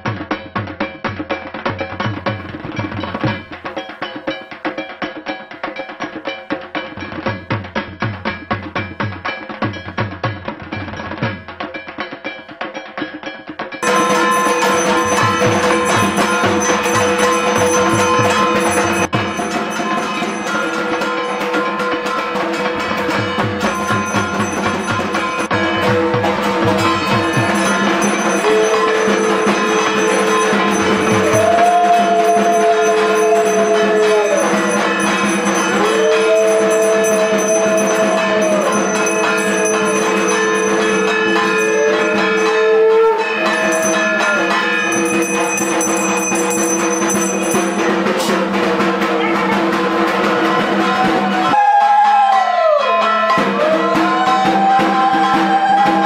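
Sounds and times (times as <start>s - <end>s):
brass hand bell ringing: 13.7s - 51.0s
long steady tones: 13.8s - 48.2s
metal gong beaten rapidly: 13.8s - 51.3s.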